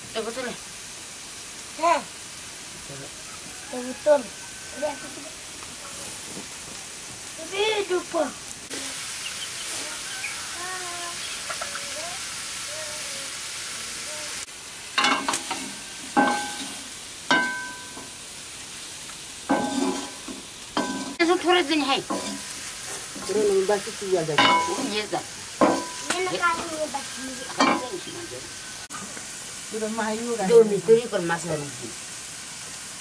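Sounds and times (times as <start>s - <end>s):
meat sizzling in a wok: 0.0s - 33.0s
metal ladle scraping iron pan: 15.0s - 18.1s, 19.5s - 21.2s, 22.0s - 23.3s, 24.4s - 25.0s.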